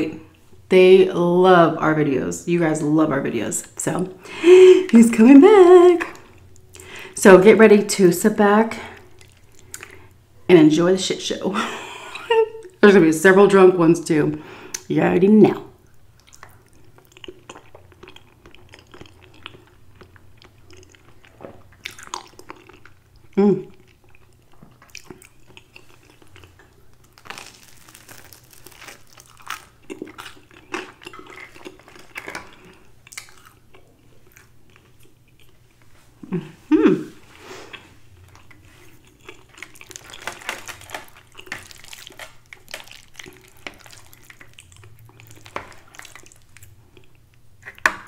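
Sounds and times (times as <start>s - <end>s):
close chewing and mouth sounds: 8.9s - 10.2s, 15.8s - 36.3s, 37.6s - 48.0s
person humming mmm: 23.3s - 23.8s, 36.2s - 37.2s.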